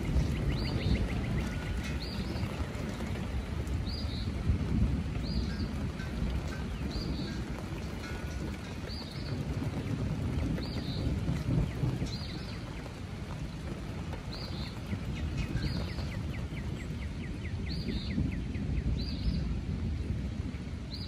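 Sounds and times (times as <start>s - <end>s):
distant rolling thunder: 0.0s - 21.0s
bird singing whistled notes: 14.4s - 19.5s.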